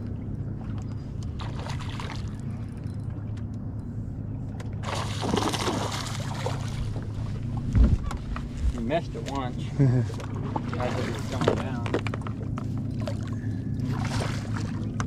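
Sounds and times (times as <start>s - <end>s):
steady low hum: 0.0s - 15.0s
fish splashing at water surface: 4.8s - 6.8s.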